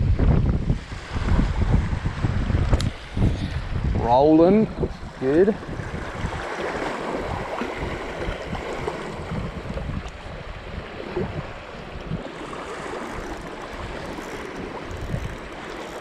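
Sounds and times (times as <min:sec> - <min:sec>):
wind buffeting microphone: 0:00.0 - 0:16.0
waves washing against rocks: 0:05.0 - 0:16.0.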